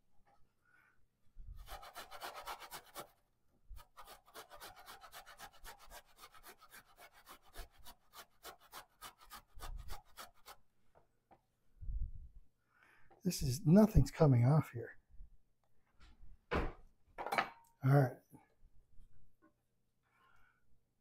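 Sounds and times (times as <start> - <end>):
ginger rasping on a grater: 1.6 - 3.2, 3.8 - 10.6.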